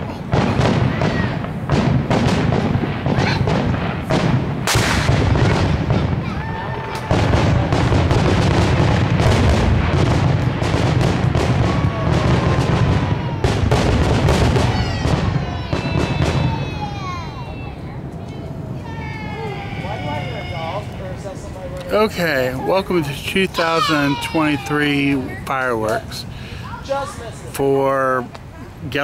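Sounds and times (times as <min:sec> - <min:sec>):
fireworks booming: 0:00.0 - 0:29.0
fireworks whistles: 0:00.2 - 0:17.8.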